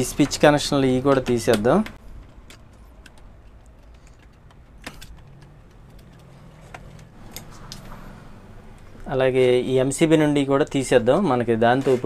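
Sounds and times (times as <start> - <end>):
clicks and rattles of wires: 0.0 - 8.0.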